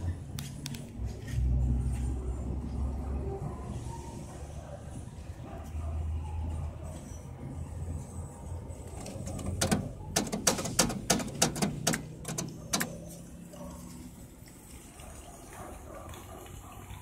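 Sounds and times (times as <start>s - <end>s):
payphone button metallic clicks: 9.2s - 13.0s.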